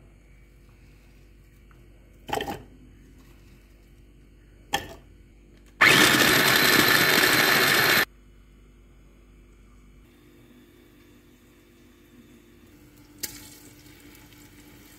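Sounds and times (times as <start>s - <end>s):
food chopper motor running: 5.8s - 8.1s.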